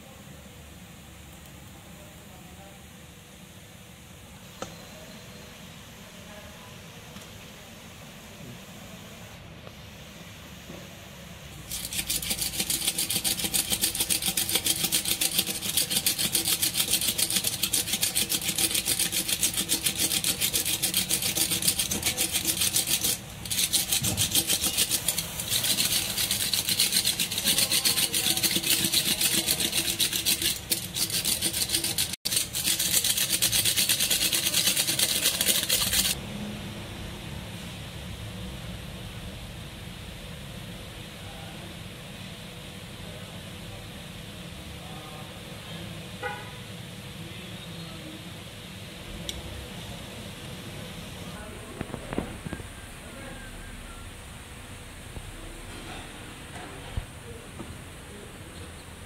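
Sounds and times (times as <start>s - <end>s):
tyre stitcher rasping rattle: 11.7s - 36.2s.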